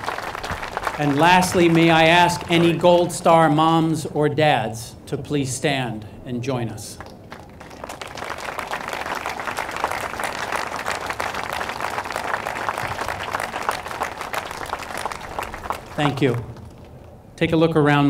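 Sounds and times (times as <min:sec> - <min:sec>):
audience applauding: 0:00.0 - 0:03.4, 0:07.0 - 0:16.8.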